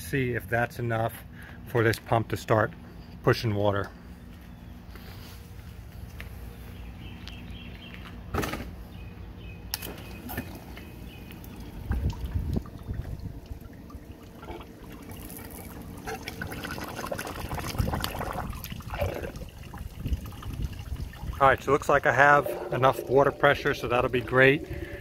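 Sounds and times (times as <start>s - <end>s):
water pouring and splashing into tub: 11.3s - 25.0s.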